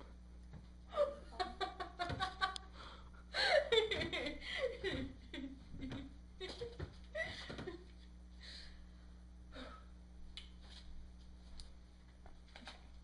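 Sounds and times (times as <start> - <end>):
low electrical hum: 0.0 - 13.0
person laughing: 0.9 - 2.7, 3.3 - 7.9.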